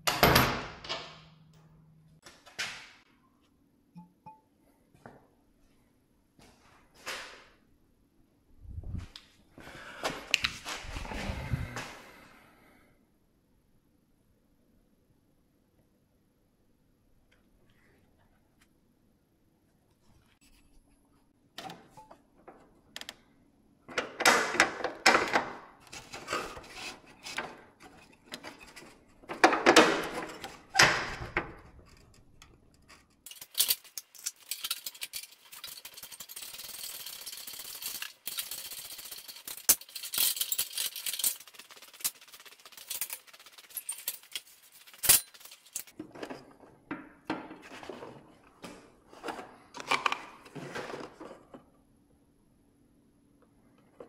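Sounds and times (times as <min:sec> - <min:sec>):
metal tools clattering and scraping: 0:26.0 - 0:46.8.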